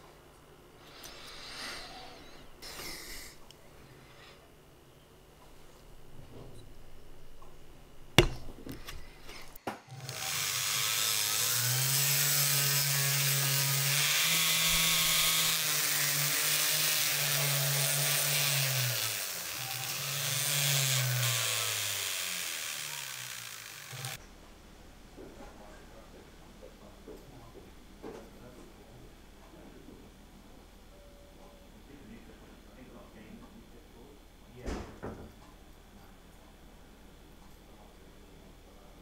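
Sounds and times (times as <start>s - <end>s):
rotary tool polishing metal: 8.2s - 24.2s.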